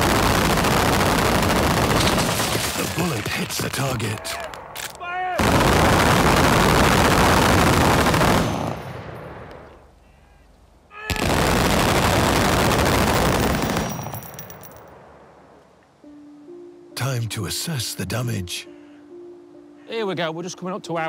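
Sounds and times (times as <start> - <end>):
machine guns firing bursts: 0.0 - 3.8, 5.4 - 9.0, 11.2 - 14.4.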